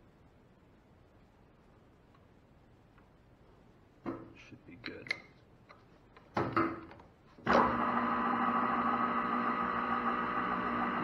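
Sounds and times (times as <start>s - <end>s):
metal lathe running with hum: 7.6s - 11.0s.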